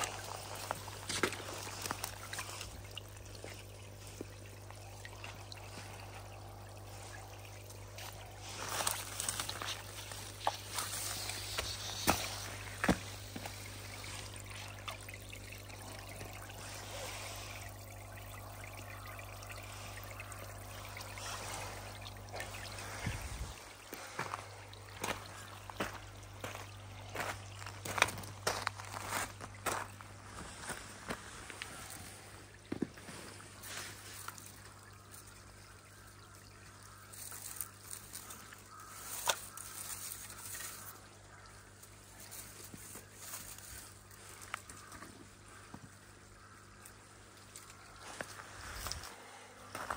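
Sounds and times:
steady low hum: 0.0 - 37.0
water spraying and trickling: 0.0 - 49.9.

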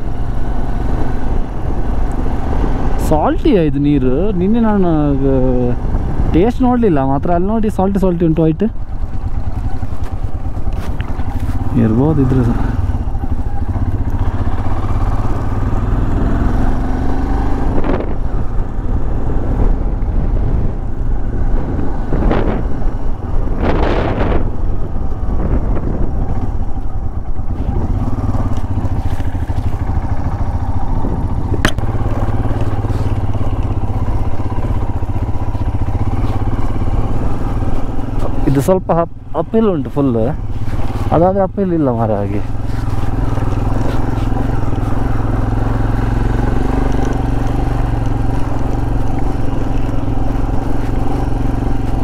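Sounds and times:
motorcycle engine hum: 0.0 - 52.0
tyres crunching on gravel: 9.5 - 12.4, 31.6 - 38.7, 39.8 - 52.0
sharp click: 31.6 - 31.8.

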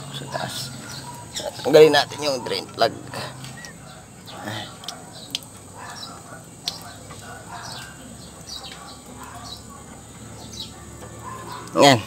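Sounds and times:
faint bird chirps: 0.0 - 12.0.

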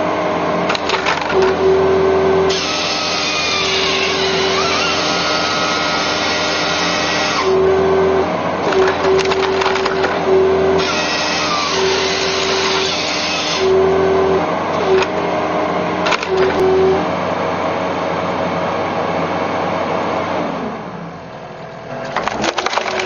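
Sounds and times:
machine drone: 0.0 - 18.9
hydraulic whine: 0.0 - 21.2
wood splitting cracks: 0.7 - 1.6, 8.7 - 10.2, 22.1 - 23.0.

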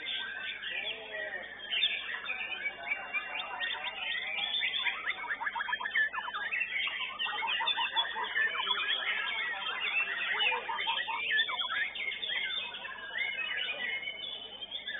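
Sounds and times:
birds singing chirps and whistles: 0.0 - 14.9.

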